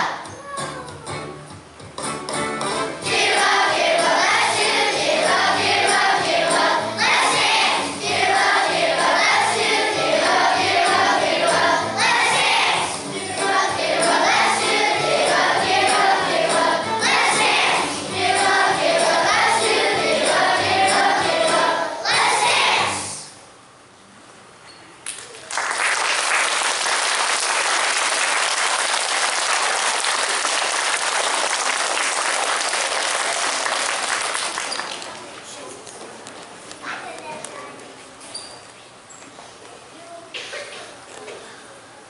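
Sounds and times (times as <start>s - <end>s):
recorded music over loudspeakers: 0.0s - 23.3s
children's choir singing: 3.0s - 23.3s.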